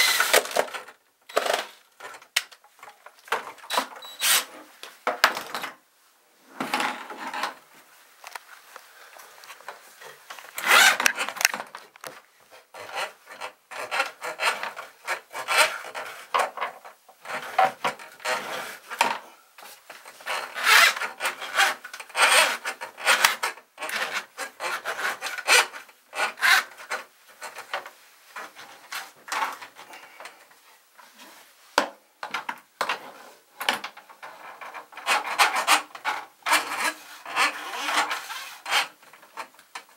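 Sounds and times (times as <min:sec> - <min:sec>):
drain auger cable scraping: 0:10.5 - 0:11.6.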